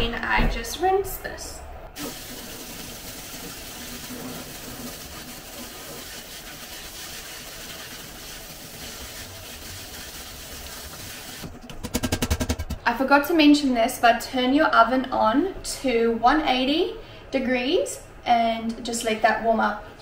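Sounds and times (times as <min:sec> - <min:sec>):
tap water running onto rice: 0:02.0 - 0:11.5.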